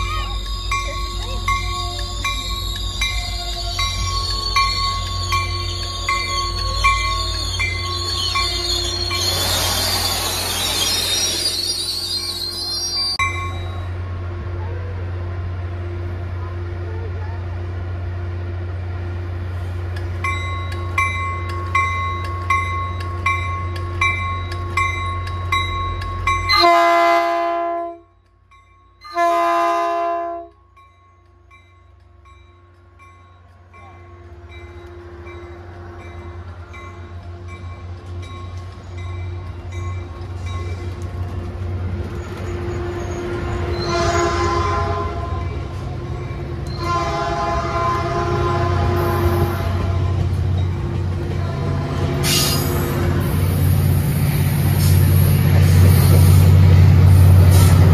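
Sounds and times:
train bell ringing: 0:00.0 - 0:14.0, 0:20.2 - 0:27.0, 0:28.1 - 0:29.6, 0:30.4 - 0:41.6, 0:50.3 - 0:51.3
train cars rumbling past: 0:00.0 - 0:57.9
train horn blasts: 0:26.5 - 0:28.2, 0:29.0 - 0:30.6, 0:43.6 - 0:45.6, 0:46.7 - 0:50.4, 0:51.2 - 0:52.5.

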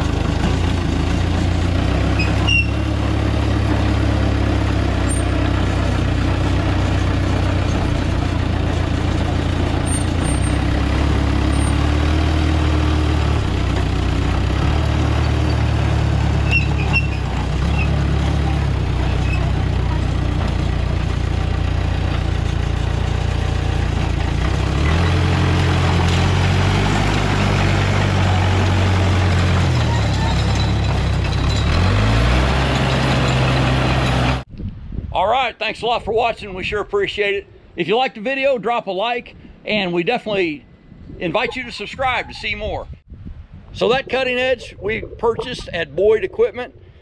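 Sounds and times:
bulldozer diesel engine running: 0:00.0 - 0:34.5.

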